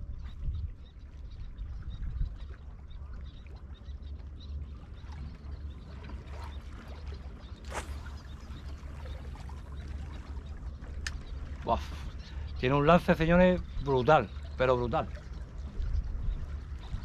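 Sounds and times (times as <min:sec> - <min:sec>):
wind rumble on microphone: 0:00.0 - 0:17.0
fishing rod and reel snap: 0:11.0 - 0:11.3.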